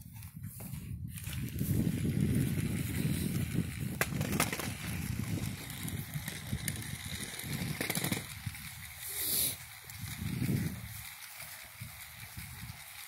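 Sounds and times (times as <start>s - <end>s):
footsteps: 0.0s - 2.2s
measuring wheel rolling: 1.1s - 13.0s.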